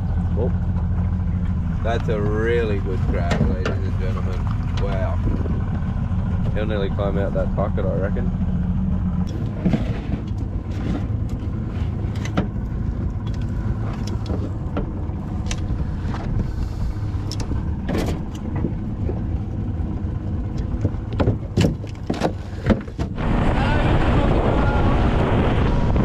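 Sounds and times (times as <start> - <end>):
boat engine running: 0.0 - 26.0
sharp clicks and knocks: 17.2 - 19.3, 20.5 - 23.2.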